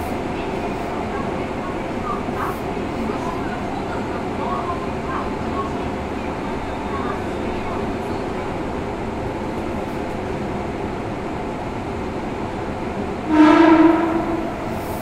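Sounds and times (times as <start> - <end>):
train horn: 13.3 - 15.0.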